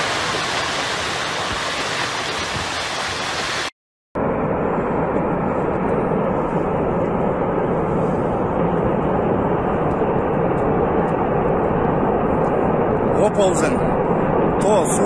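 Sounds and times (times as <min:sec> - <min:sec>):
rockslide rumbling: 0:00.0 - 0:03.7.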